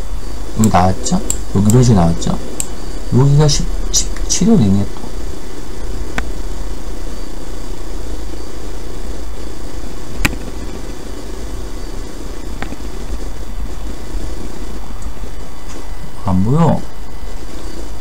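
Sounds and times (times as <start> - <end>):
low background hum: 0.0 - 18.0
sharp clicks: 0.6 - 2.8, 3.5 - 4.4, 10.2 - 11.1.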